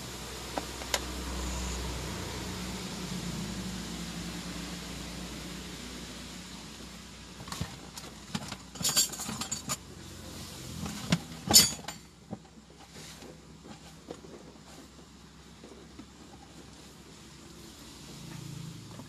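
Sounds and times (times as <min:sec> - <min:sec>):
steady hiss: 0:00.0 - 0:11.6.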